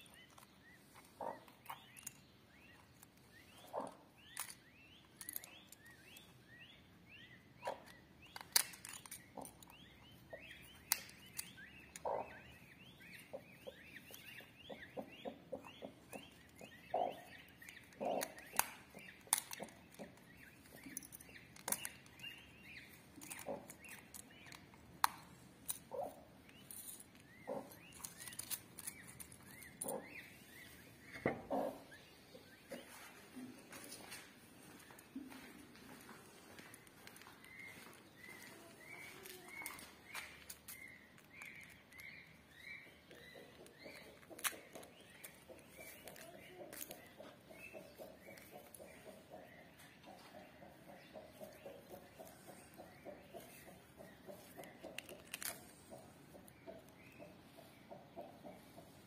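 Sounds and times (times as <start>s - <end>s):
birds chirping: 0.0s - 59.0s
eggshell cracking: 54.6s - 55.7s.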